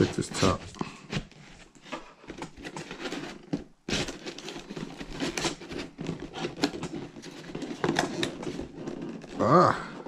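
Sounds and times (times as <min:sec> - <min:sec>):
plastic packaging crinkling: 0:02.2 - 0:09.6.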